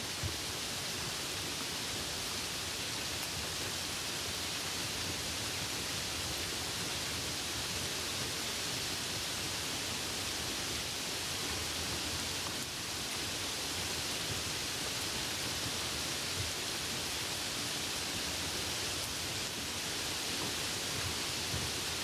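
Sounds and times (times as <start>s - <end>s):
rain falling on car: 11.2s - 22.0s.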